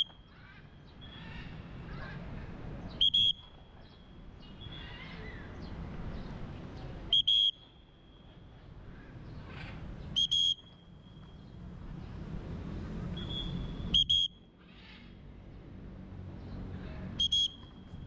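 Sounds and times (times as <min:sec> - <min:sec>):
low city hum: 0:00.0 - 0:18.0
whistle blasts: 0:03.0 - 0:03.6, 0:07.1 - 0:08.2, 0:10.2 - 0:11.2, 0:13.2 - 0:14.4, 0:17.2 - 0:17.8.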